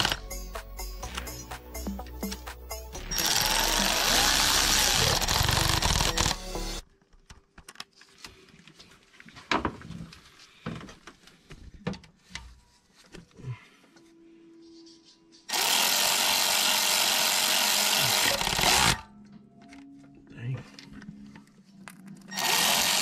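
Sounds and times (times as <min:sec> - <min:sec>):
power driver running: 0:03.0 - 0:06.8, 0:15.5 - 0:19.0, 0:22.3 - 0:23.0.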